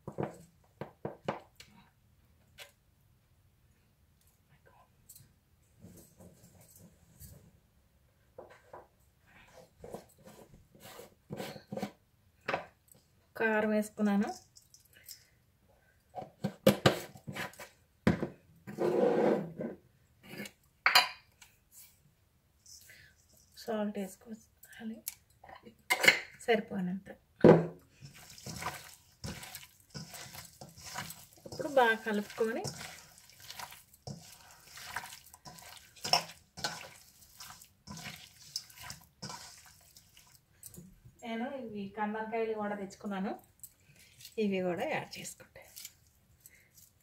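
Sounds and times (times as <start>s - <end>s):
rustling scrape: 9.4s - 12.0s, 18.7s - 19.6s, 28.0s - 40.4s
wet squelching of meat mixing: 27.9s - 40.9s, 43.5s - 44.9s, 45.5s - 47.0s
meat slapping against steel bowl: 28.0s - 40.8s.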